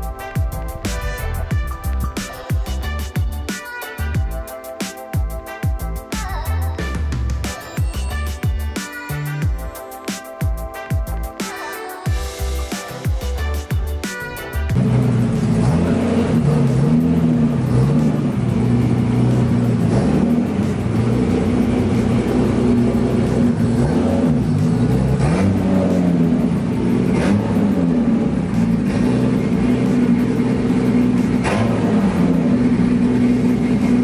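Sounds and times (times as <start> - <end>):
car engine running at low speed: 14.7 - 34.0.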